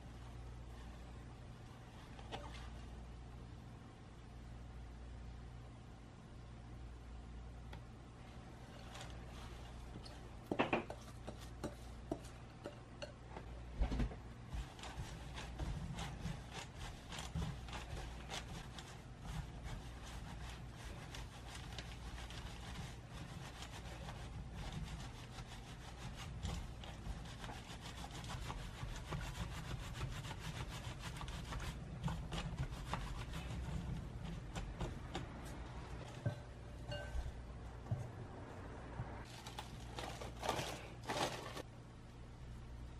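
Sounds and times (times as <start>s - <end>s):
leaves rubbed on bamboo sieve: 14.5s - 34.6s.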